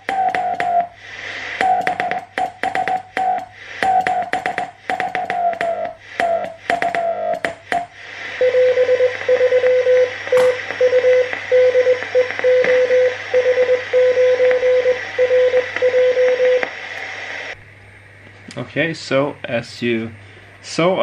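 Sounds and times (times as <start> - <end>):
radio band hiss: 0.0 - 17.6, 18.6 - 21.0
low hum: 0.0 - 21.0
morse code tone: 1.6 - 7.5, 8.4 - 16.7.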